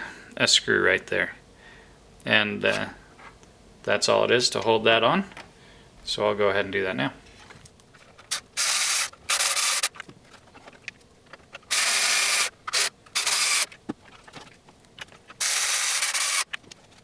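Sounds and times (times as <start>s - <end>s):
electric screwdriver driving screws: 8.3s - 9.9s, 11.7s - 13.7s, 15.4s - 16.5s.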